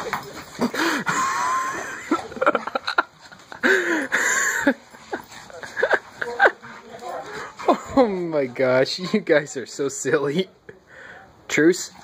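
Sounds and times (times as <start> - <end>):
dogs growling while play-fighting: 0.0 - 8.3.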